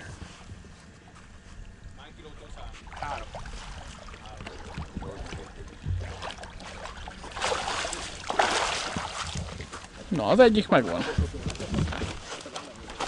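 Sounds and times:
wading steps in water: 0:02.6 - 0:13.0
water streaming off landing net: 0:06.0 - 0:09.6.

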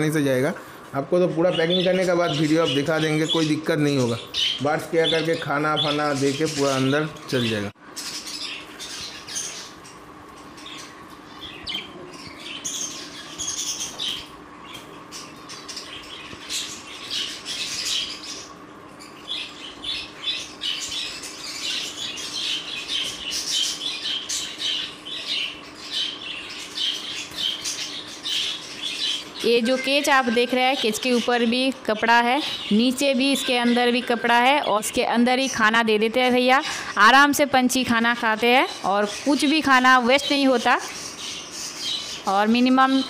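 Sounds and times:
budgerigars chattering and squawking: 0:01.2 - 0:37.3, 0:38.2 - 0:43.0.

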